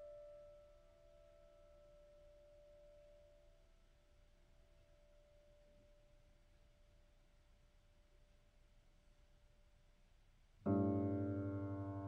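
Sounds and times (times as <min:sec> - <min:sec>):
faint piano tone: 0:00.0 - 0:07.3, 0:10.6 - 0:12.0.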